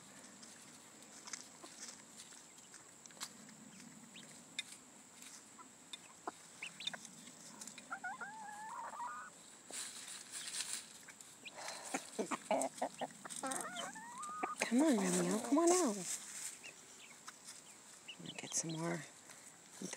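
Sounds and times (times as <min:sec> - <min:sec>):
pecking and scratching in dry leaves: 0:00.0 - 0:19.9
chickens clucking: 0:00.5 - 0:19.1
chicken wavering call: 0:07.9 - 0:09.3, 0:11.8 - 0:14.6.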